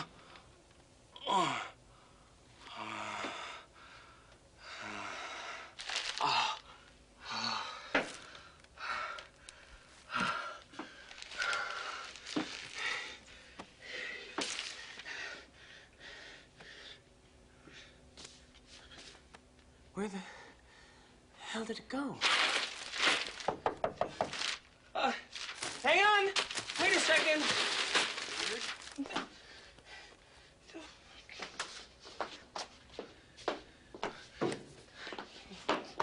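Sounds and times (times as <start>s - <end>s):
man breathing heavily: 1.4s - 19.3s, 20.1s - 21.3s, 26.8s - 31.5s, 32.9s - 36.0s.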